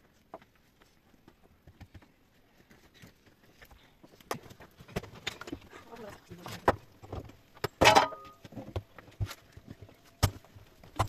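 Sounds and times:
stones knocking and clattering: 4.2 - 11.0.

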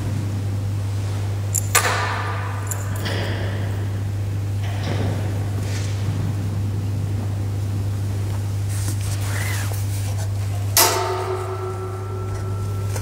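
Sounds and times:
steady low hum: 0.0 - 13.0
ringing metallic knock: 10.8 - 13.0.

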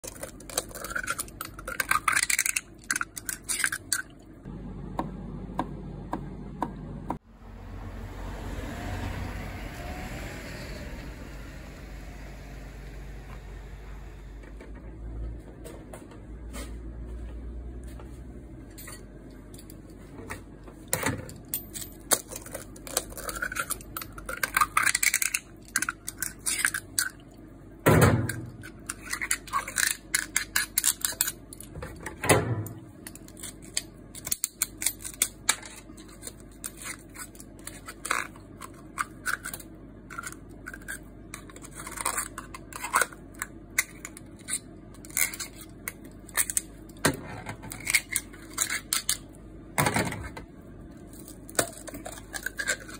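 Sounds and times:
knife scraping clam shells: 22.1 - 27.2, 33.2 - 46.6, 47.7 - 49.2, 51.8 - 52.9.

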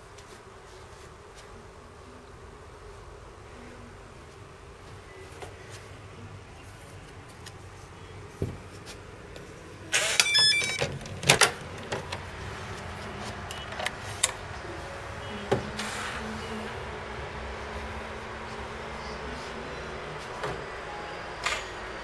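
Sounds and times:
low steady hum: 0.0 - 22.0
door lock beeps: 10.0 - 10.9.

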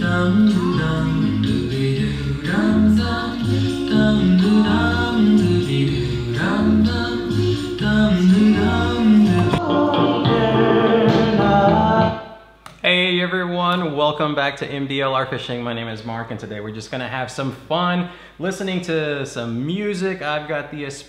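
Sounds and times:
repeating bass line: 0.0 - 12.2
song with singing: 0.0 - 12.6.

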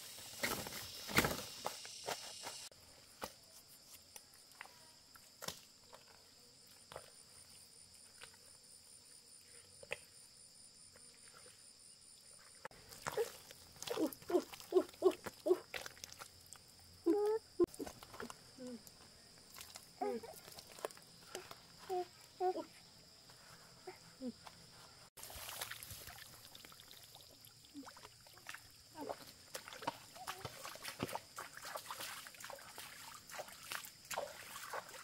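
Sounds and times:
insects chirping: 0.0 - 35.0
mud squelching under hands: 12.7 - 22.0, 25.2 - 35.0.

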